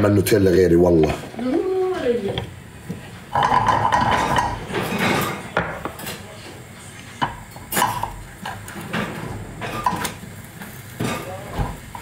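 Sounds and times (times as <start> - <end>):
utensils and dishes clinking: 3.3 - 6.4, 7.2 - 12.0.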